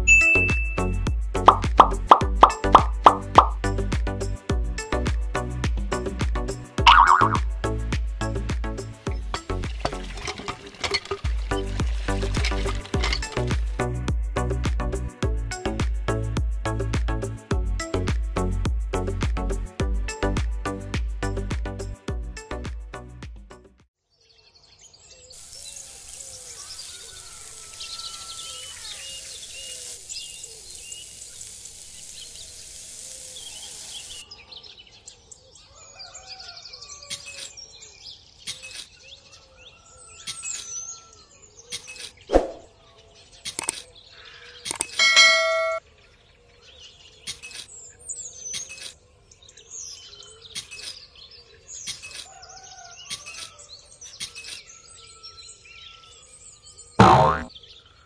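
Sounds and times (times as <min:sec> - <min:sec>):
ringing ding: 0:00.0 - 0:00.8, 0:45.0 - 0:45.8
birds chirping: 0:06.8 - 0:07.4, 0:37.6 - 0:45.8
hiss: 0:25.4 - 0:34.2
sharp click: 0:44.7 - 0:45.0.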